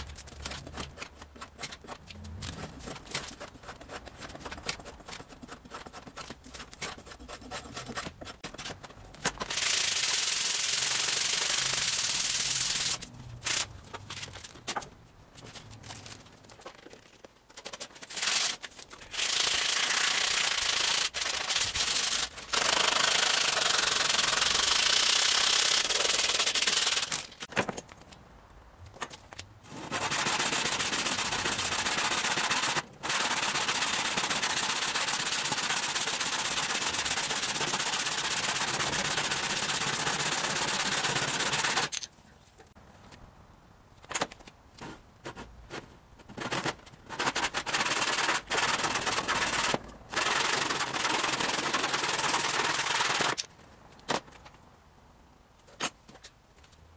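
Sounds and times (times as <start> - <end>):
sandpaper rubbing wood: 0.0 - 8.6, 9.4 - 13.7, 17.7 - 27.3, 29.6 - 41.9, 46.4 - 53.4
handsaw cutting wood: 29.7 - 41.9, 46.4 - 53.4.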